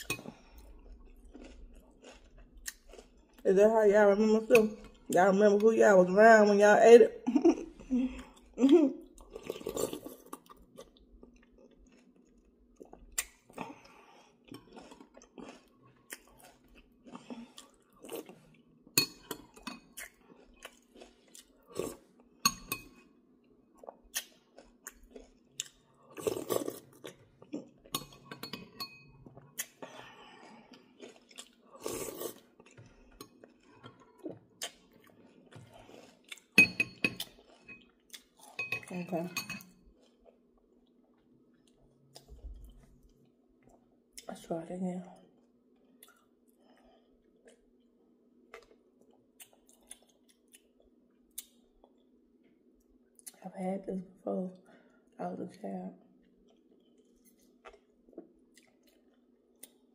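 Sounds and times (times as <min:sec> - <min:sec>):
person chewing: 0:00.0 - 0:03.4, 0:07.8 - 0:38.7, 0:39.6 - 0:44.3, 0:45.4 - 0:53.4, 0:56.2 - 0:59.9
metal spoon clinking on glass bowl: 0:28.0 - 0:29.1, 0:36.6 - 0:37.8, 0:38.6 - 0:39.7.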